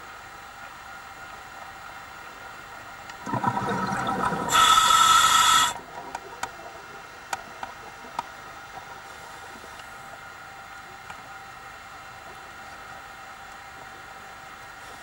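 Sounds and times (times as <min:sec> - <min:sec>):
faint hum: 0:00.0 - 0:15.0
underwater bubbling rush: 0:03.2 - 0:06.9
regulator inhale hiss: 0:04.5 - 0:05.8.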